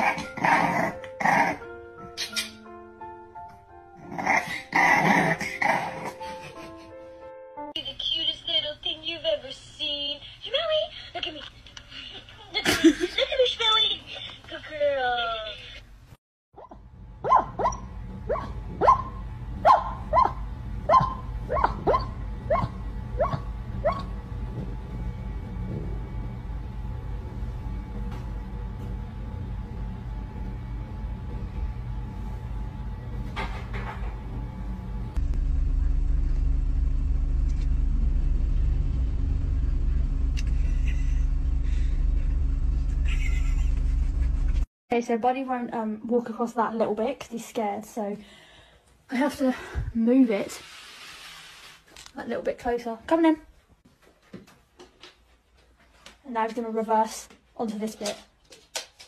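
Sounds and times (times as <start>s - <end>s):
dog barking and yipping: 16.6s - 24.1s
car engine rumble: 16.9s - 44.7s.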